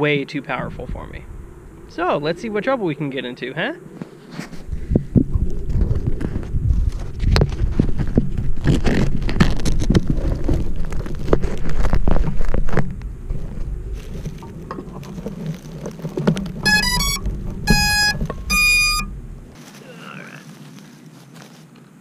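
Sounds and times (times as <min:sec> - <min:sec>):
wind rumbling on microphone: 0:00.0 - 0:19.6
electronic beeps: 0:16.6 - 0:19.2.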